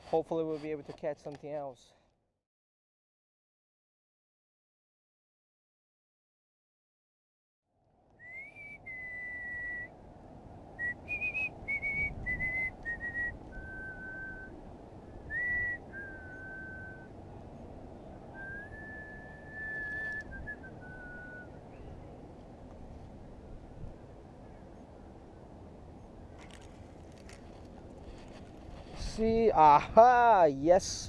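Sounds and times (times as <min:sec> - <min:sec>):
person whistling a tune: 0:08.2 - 0:09.9, 0:10.8 - 0:14.5, 0:15.3 - 0:17.1, 0:18.4 - 0:21.5.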